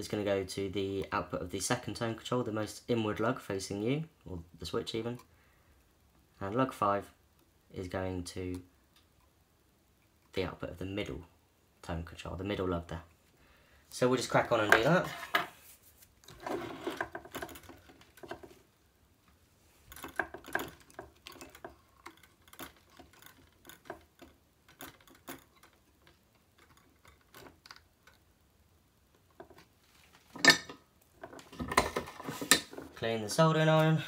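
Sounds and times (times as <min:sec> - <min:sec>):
pickguard handling clicks and rattles: 0:16.3 - 0:18.6, 0:19.9 - 0:28.2.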